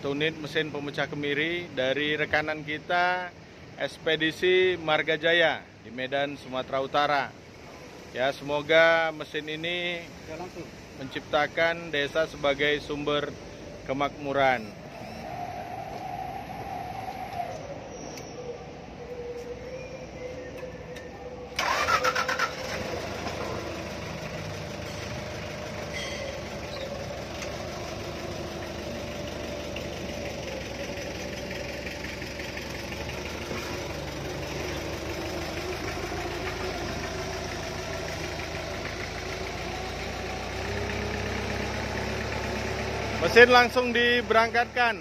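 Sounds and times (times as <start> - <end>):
forklift engine starting and running: 12.2 - 45.0.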